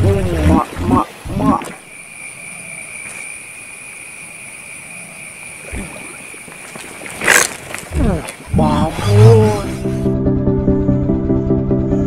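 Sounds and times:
fish splashing in water: 5.7 - 8.5.

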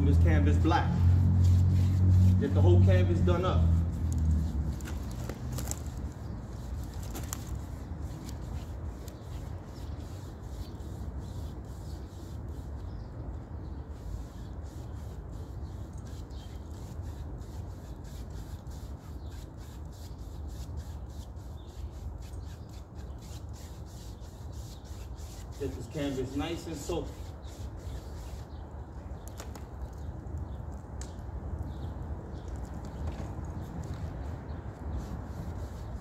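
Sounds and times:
paintbrush scrubbing canvas: 1.0 - 5.2, 14.0 - 28.5, 35.0 - 36.0.

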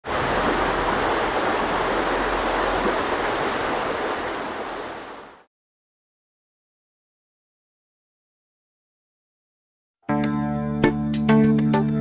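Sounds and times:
flowing water rushing: 0.0 - 5.5.

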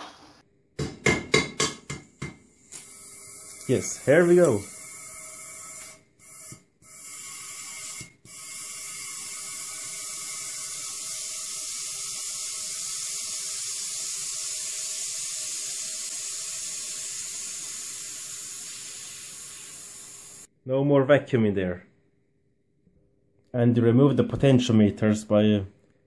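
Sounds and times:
air hissing into a tube: 2.7 - 20.5.

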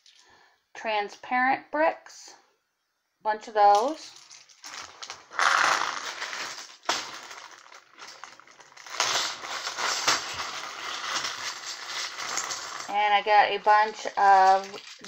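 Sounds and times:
packaging crinkling and rustling: 4.3 - 13.0, 13.7 - 15.0.

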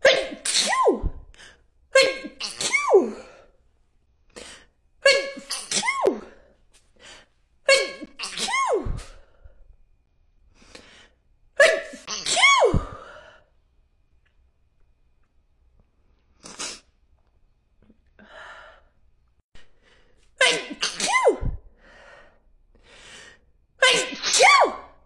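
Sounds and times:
woman sneezing: 0.0 - 1.2, 2.0 - 3.4, 5.0 - 6.4, 7.7 - 9.2, 11.6 - 13.1, 20.4 - 21.6, 23.8 - 25.0.

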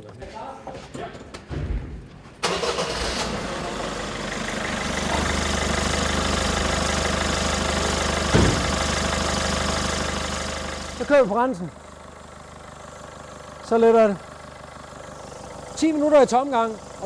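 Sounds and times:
diesel engine starting and idling: 2.4 - 17.0
short knock: 8.3 - 8.7.

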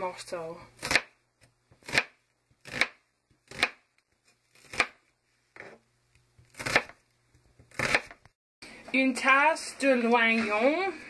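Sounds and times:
knife chopping onion on board: 0.8 - 1.1, 1.8 - 3.9, 4.5 - 5.0, 6.4 - 7.0, 7.6 - 8.2.

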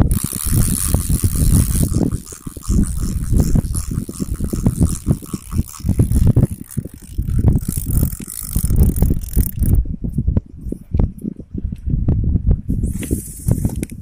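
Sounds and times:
fishing reel ratcheting clicks: 0.0 - 9.8
wind buffeting microphone: 0.0 - 14.0.

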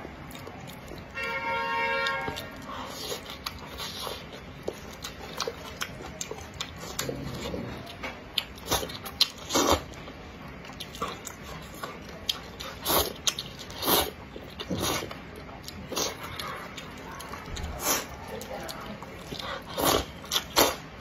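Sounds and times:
noodles chewed and slurped: 0.0 - 21.0.

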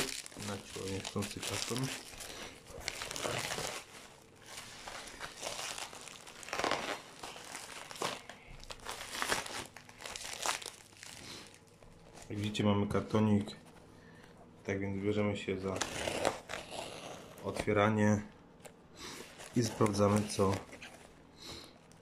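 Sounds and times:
plastic wrapping crinkling: 0.0 - 12.6, 18.6 - 22.0.

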